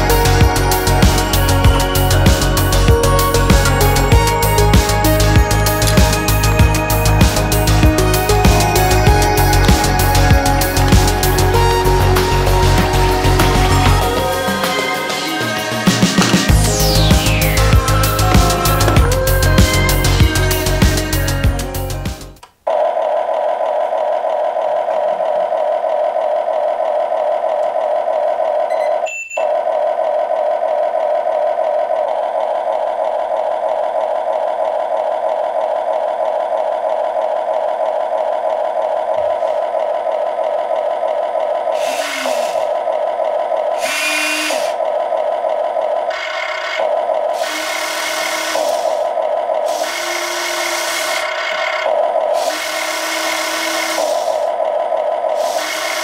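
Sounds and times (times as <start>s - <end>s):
simulated engine drone from speaker: 0.0s - 22.2s
electric motors whirring: 32.6s - 56.0s.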